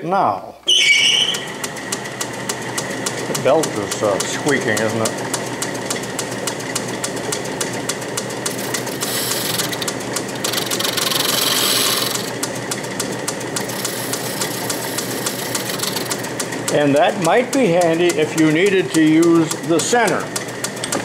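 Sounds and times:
drive belt squeaking: 0:00.7 - 0:02.2, 0:08.4 - 0:12.3, 0:13.6 - 0:21.0
lathe running: 0:01.2 - 0:21.0
rapid even ticking: 0:08.4 - 0:12.4
lathe tool cutting hiss: 0:11.0 - 0:12.3.

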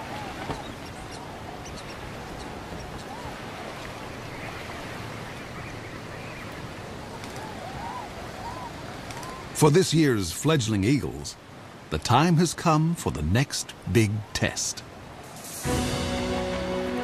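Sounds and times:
coots calling: 0:05.6 - 0:09.6.

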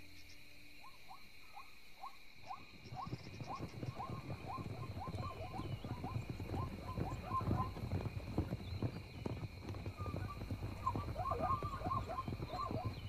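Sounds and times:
insects trilling: 0:00.0 - 0:13.0
patter of low thuds: 0:02.7 - 0:13.0.

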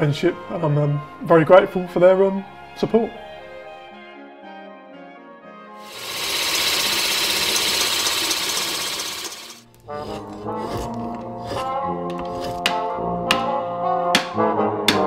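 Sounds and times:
pillar drill boring into wood: 0:05.8 - 0:11.6
woodwind music: 0:09.8 - 0:15.0.

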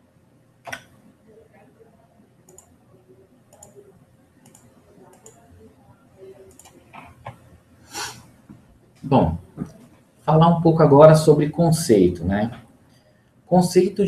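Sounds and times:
faint room noise: 0:00.0 - 0:14.0
computer mouse clicks: 0:00.6 - 0:00.9, 0:02.5 - 0:02.8, 0:03.5 - 0:03.8, 0:04.4 - 0:05.5, 0:06.5 - 0:07.4.

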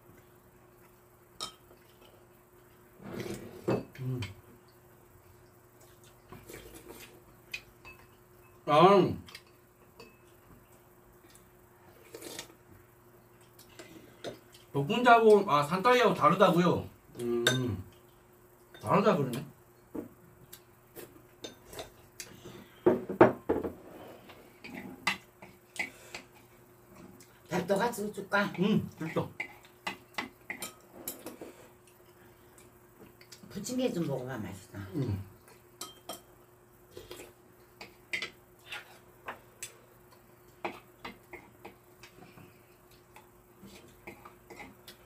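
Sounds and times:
faint steady hum: 0:00.0 - 0:45.0
utensils clinking on ceramic bowls: 0:35.8 - 0:36.3.

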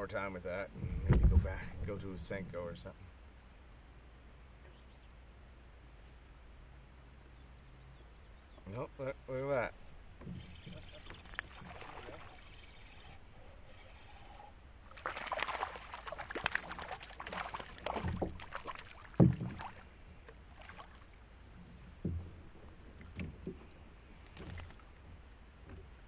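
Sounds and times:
water splashing: 0:10.2 - 0:21.3.

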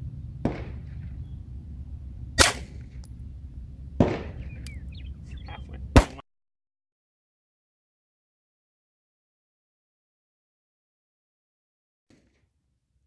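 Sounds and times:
pistol shots: 0:00.4 - 0:01.3, 0:02.4 - 0:03.1, 0:04.0 - 0:04.8, 0:05.9 - 0:06.2.

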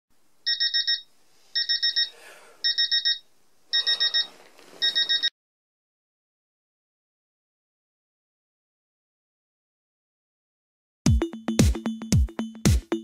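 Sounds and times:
alarm clock beeping: 0:00.5 - 0:01.0, 0:01.6 - 0:05.3
bedding rustling: 0:04.0 - 0:05.3.

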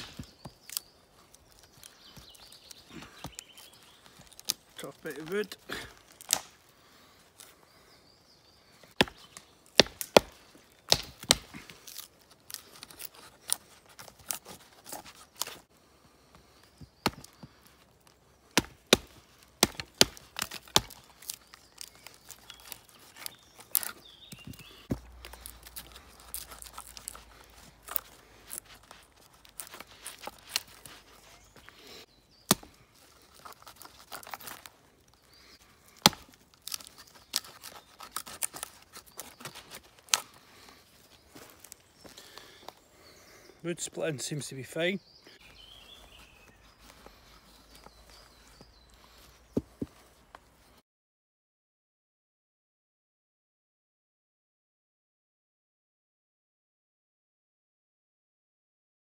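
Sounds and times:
wood cracking and splitting: 0:00.0 - 0:06.8, 0:08.8 - 0:15.7, 0:16.4 - 0:42.8.

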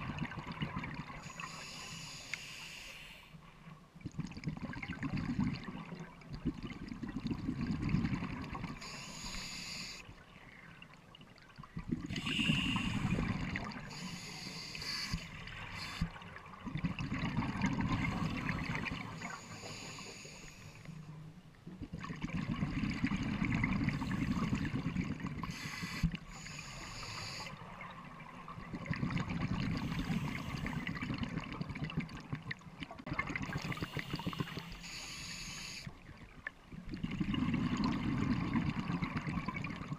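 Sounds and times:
exhaled bubbles gushing: 0:00.0 - 0:01.4, 0:04.0 - 0:09.0, 0:11.6 - 0:14.0, 0:15.3 - 0:19.4, 0:21.8 - 0:26.4, 0:27.6 - 0:34.7, 0:36.2 - 0:39.9
regulator hissing inhale: 0:01.2 - 0:03.4, 0:08.8 - 0:10.1, 0:12.1 - 0:16.1, 0:19.2 - 0:21.0, 0:25.4 - 0:27.6, 0:29.8 - 0:30.9, 0:33.6 - 0:36.0.

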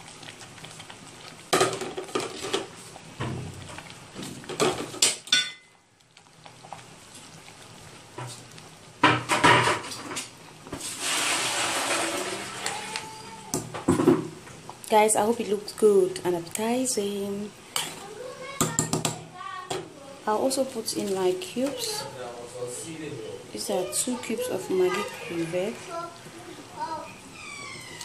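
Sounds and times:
soup hissing while stirred: 0:09.9 - 0:13.6, 0:17.5 - 0:18.5, 0:23.6 - 0:28.0
spoon scraping metal pot: 0:24.5 - 0:26.1.

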